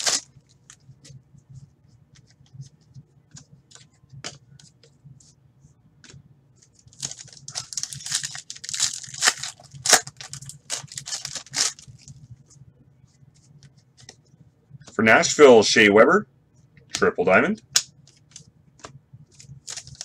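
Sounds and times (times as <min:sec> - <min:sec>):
foil pack tearing and crinkling: 0:00.0 - 0:00.3, 0:06.9 - 0:12.1, 0:19.6 - 0:20.0.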